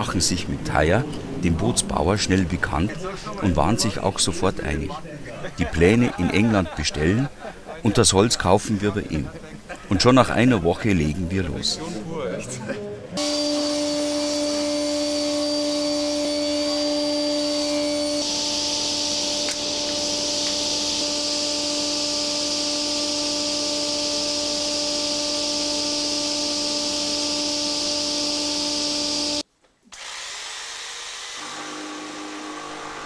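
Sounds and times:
jigsaw cutting a board: 13.2s - 33.0s
table saw whining: 13.2s - 33.0s.

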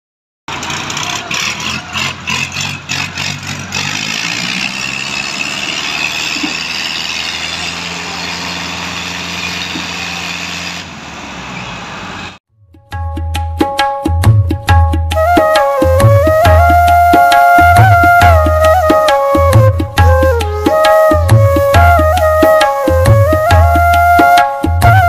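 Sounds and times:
tractor engines droning: 0.5s - 12.4s.

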